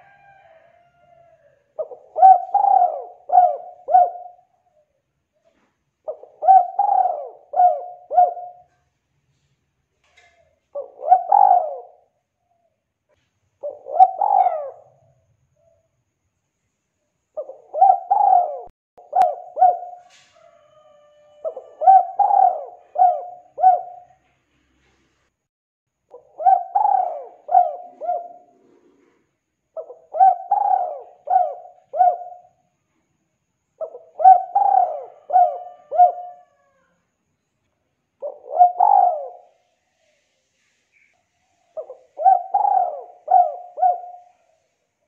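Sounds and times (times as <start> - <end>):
dove cooing: 0.0 - 1.0, 1.7 - 8.9, 10.2 - 12.2, 13.6 - 15.8, 17.4 - 24.3, 26.1 - 32.6, 33.8 - 37.0, 38.2 - 40.3, 41.7 - 44.8.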